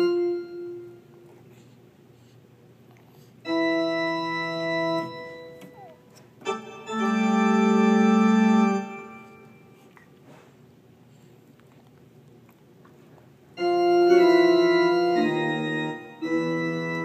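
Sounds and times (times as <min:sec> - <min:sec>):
electronic keyboard notes: 0:00.0 - 0:01.1, 0:03.5 - 0:09.6, 0:13.6 - 0:17.0.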